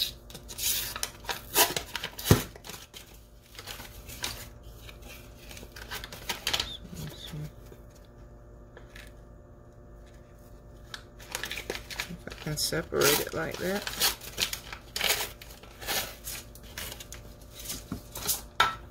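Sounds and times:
cardboard and foil rustling: 0.4s - 7.5s, 10.8s - 18.5s.

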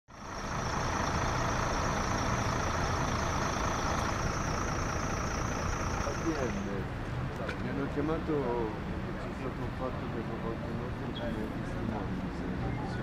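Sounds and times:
faint high whine: 0.1s - 6.9s
traffic noise: 0.1s - 13.0s
vehicle engine idling: 0.1s - 13.0s.

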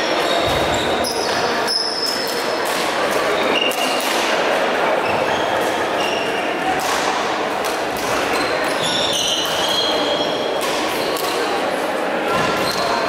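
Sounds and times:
shoes squeaking on court floor: 0.0s - 2.6s, 5.0s - 6.4s, 8.2s - 11.5s, 12.3s - 13.0s
rackets hitting shuttlecock: 6.7s - 9.7s, 10.6s - 11.5s.

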